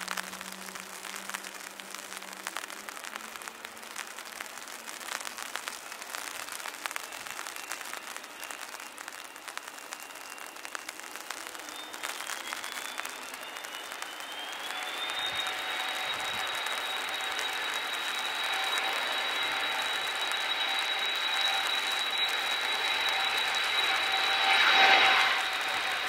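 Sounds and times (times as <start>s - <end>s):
heavy rain pattering: 0.0s - 26.0s
jet engine whine: 0.0s - 26.0s.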